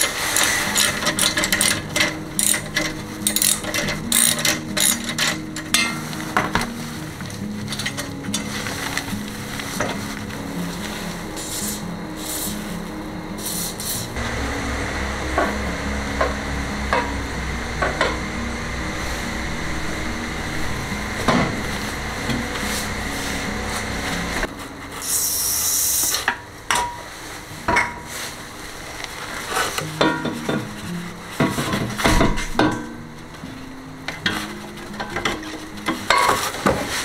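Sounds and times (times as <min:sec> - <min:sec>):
clicks and knocks of work: 0:00.0 - 0:08.5
aerosol spray can hissing: 0:13.4 - 0:14.2.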